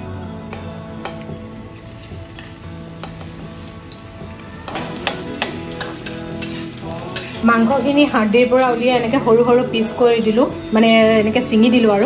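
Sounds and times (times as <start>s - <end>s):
onions sizzling in hot oil: 0.0s - 8.0s
metal spoon clanking on pan: 2.4s - 7.4s.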